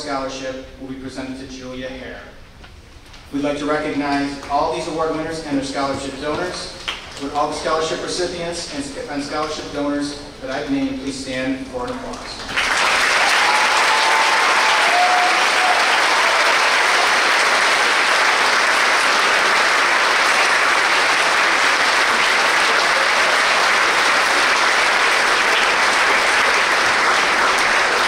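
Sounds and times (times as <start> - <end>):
large audience applauding: 12.4 - 28.0.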